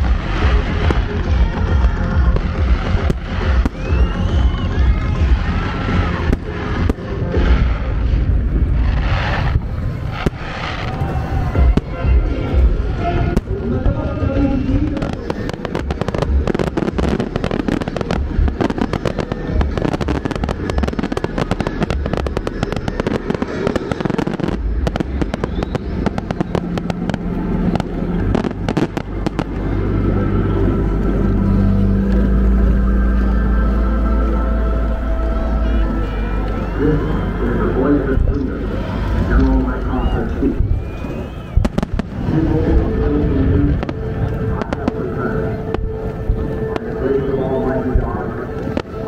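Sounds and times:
firework booms: 0.0s - 29.7s, 38.1s - 47.0s
firework crackling: 0.0s - 49.0s.

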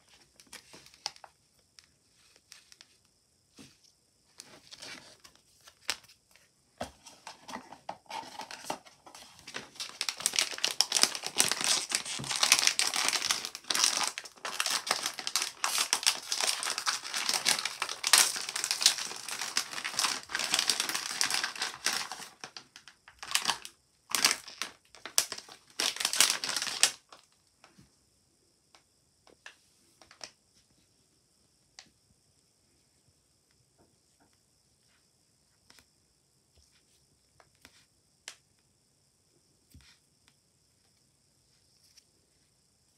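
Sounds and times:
plastic wrapping crinkling: 7.0s - 27.3s.

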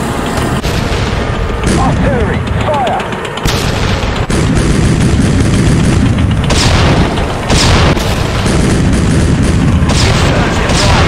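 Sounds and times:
heavy rumble: 0.0s - 11.0s
explosions: 0.6s - 2.4s, 3.4s - 11.0s
scattered gunfire: 1.6s - 11.0s.

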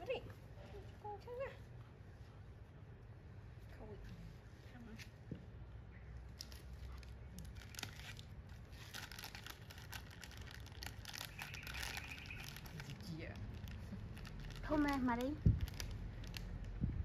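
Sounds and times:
plastic wrapper crackling: 6.3s - 16.8s.

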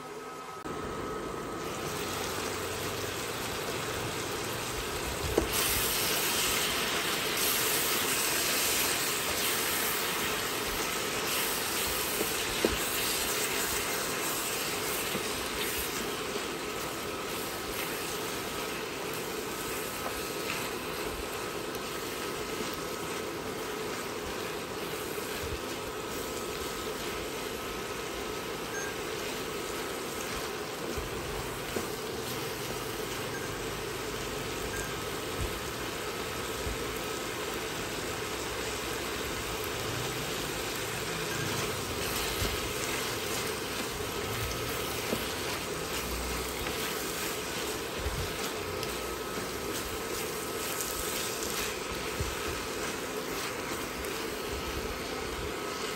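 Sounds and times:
vegetables sizzling in a wok: 0.0s - 55.9s
spatula stirring: 41.0s - 55.9s.

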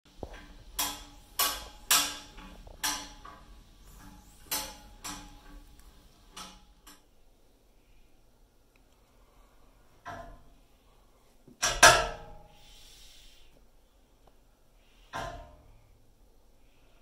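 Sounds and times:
heating pipes banging: 0.1s - 7.1s, 10.0s - 10.6s, 11.5s - 12.6s, 15.0s - 15.8s.

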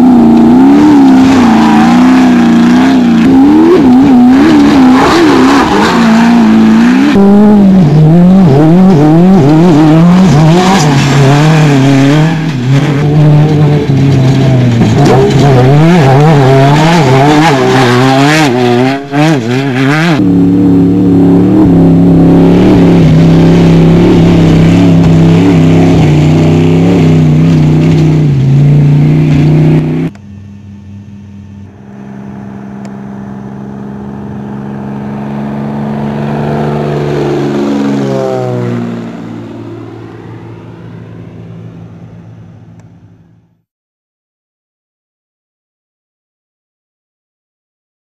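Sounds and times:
truck engine revving hard: 0.0s - 30.1s, 31.8s - 40.6s
propeller plane passing: 29.2s - 43.5s.

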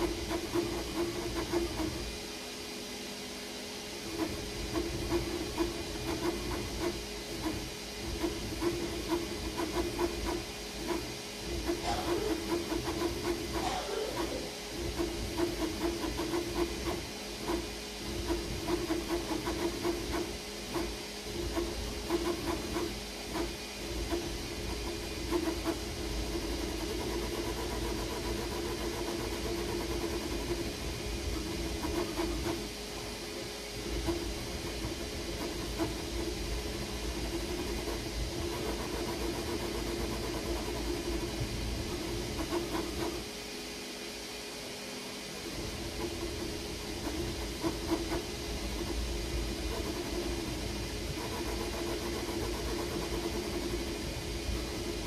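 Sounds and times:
fan hiss: 0.0s - 55.0s
stepper motors whining: 11.0s - 17.1s.

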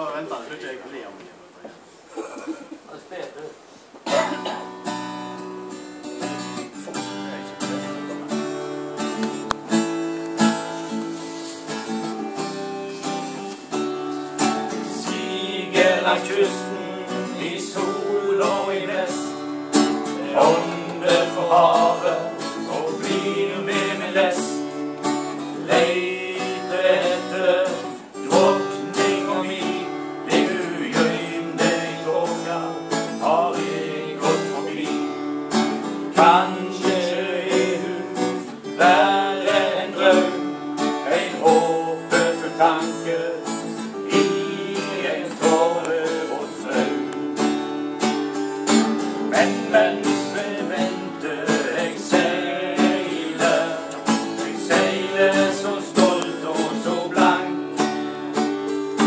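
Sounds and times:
guitar strumming: 4.1s - 59.0s
person singing: 14.5s - 19.4s, 20.1s - 24.8s, 25.4s - 47.3s, 49.2s - 58.0s.

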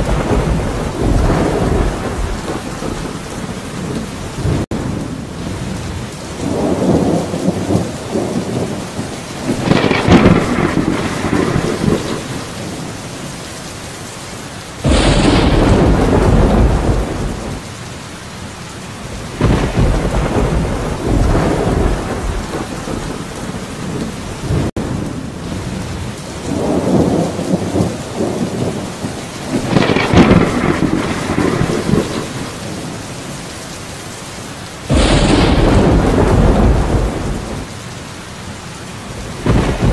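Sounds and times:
loud thunder clap: 0.0s - 3.2s, 9.4s - 12.5s, 14.8s - 17.6s, 19.4s - 23.3s, 26.5s - 32.5s, 34.9s - 37.7s, 39.3s - 39.9s
thunder rumbling: 0.0s - 13.4s, 14.8s - 17.7s, 19.0s - 33.5s, 34.7s - 37.9s, 38.8s - 39.9s
steady rain: 0.0s - 39.9s.

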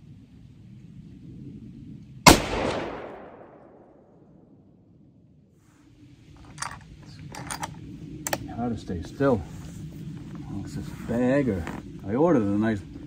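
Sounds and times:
rifle shot crack: 2.2s - 4.2s
gunshot echo: 2.3s - 4.1s.

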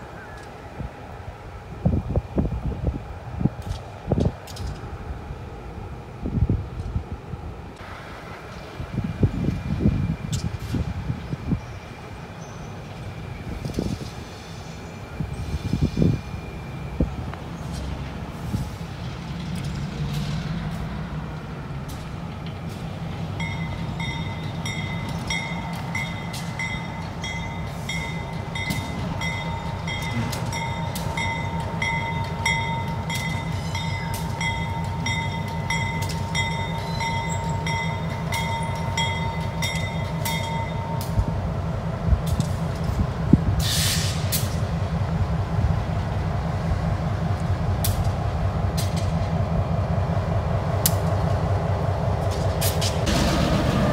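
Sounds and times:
locomotive engine throbbing: 15.2s - 53.9s
locomotive bell ringing: 23.4s - 41.2s
air release hiss: 43.6s - 44.5s.

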